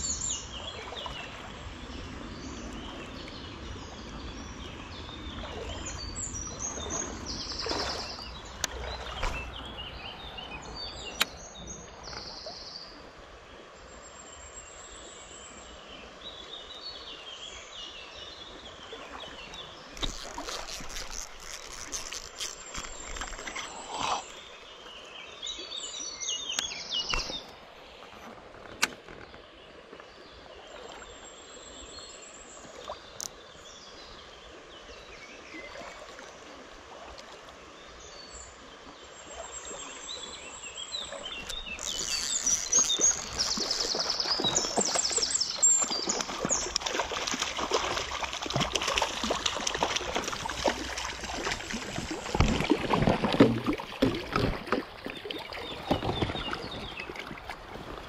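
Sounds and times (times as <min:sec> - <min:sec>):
birds chirping: 0:00.0 - 0:13.0, 0:19.2 - 0:29.5, 0:39.3 - 0:57.4
creek water running: 0:00.0 - 0:58.0
fish splashing at surface: 0:41.4 - 0:54.9.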